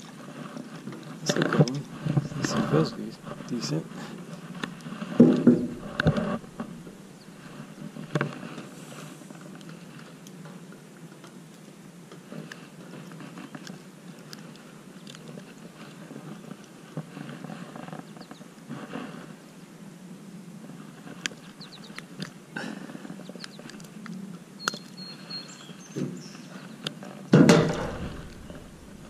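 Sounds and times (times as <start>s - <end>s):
handling noise: 0.2s - 9.6s, 27.4s - 29.0s.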